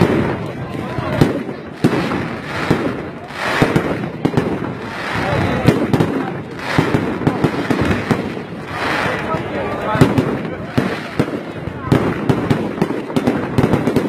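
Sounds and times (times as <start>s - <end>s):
fireworks bangs: 0.0s - 14.0s
fireworks crackling hiss: 0.0s - 14.0s.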